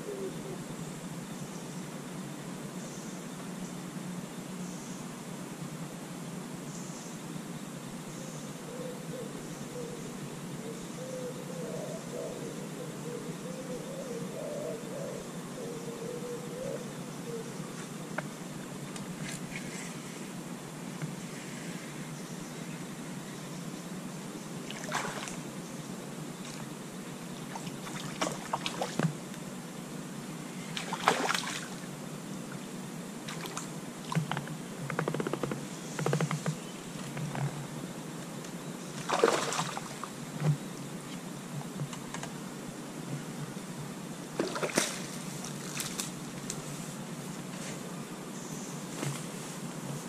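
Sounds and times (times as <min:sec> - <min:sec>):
faint steady hiss: 0:00.0 - 0:50.0
small splashes on water: 0:39.0 - 0:40.0.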